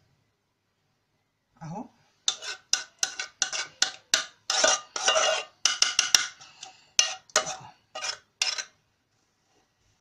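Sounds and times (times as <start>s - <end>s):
spoon scraping a pot: 2.2s - 8.8s.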